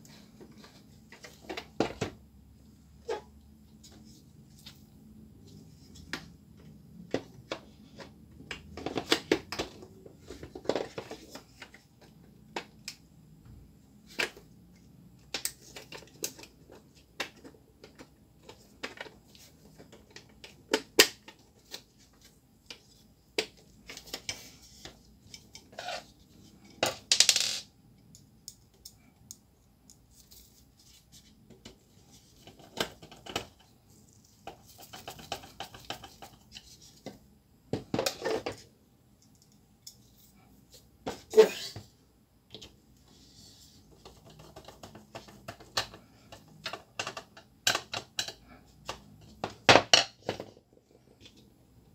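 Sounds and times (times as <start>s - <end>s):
plastic parts clicking and rattling: 43.9s - 50.6s.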